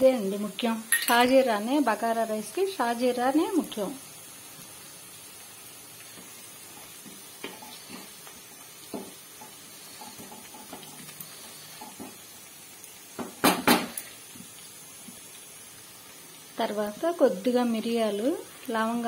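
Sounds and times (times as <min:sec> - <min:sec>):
onions frying: 0:00.0 - 0:19.0
spatula scraping pan: 0:07.4 - 0:08.2
knocks on pan: 0:13.2 - 0:14.0.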